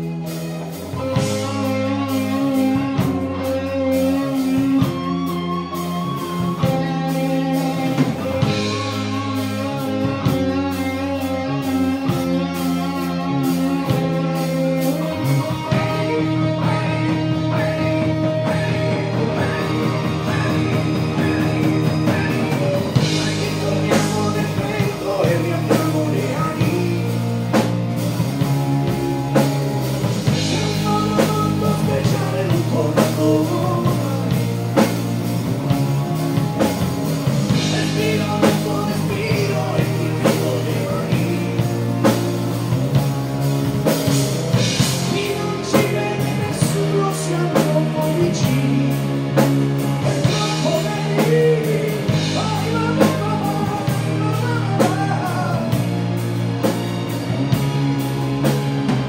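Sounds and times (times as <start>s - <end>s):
live rock band playing: 0.0s - 59.0s
man singing: 6.5s - 35.4s, 37.4s - 42.8s, 44.5s - 56.2s.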